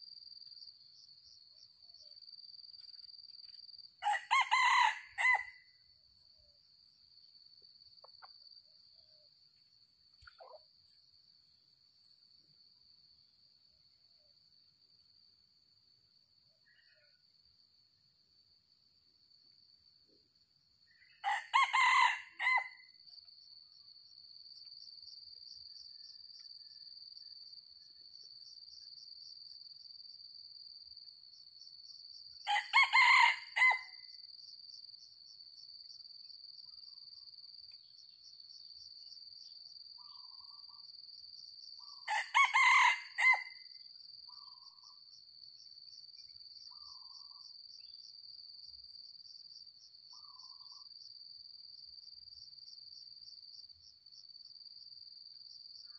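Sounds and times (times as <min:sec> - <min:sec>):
rooster crowing: 0:04.0 - 0:05.7, 0:21.2 - 0:22.8, 0:32.5 - 0:34.0, 0:42.1 - 0:43.7.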